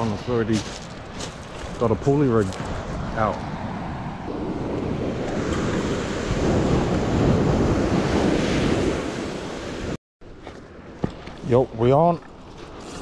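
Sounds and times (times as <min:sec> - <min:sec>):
waves washing on stony beach: 0:00.0 - 0:10.0
wind buffeting microphone: 0:00.0 - 0:10.0.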